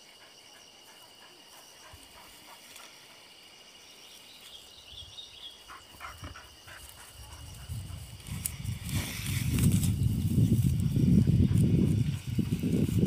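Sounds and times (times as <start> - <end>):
insects trilling: 0.0 - 13.0
rustles in dry pine needles: 6.8 - 13.0.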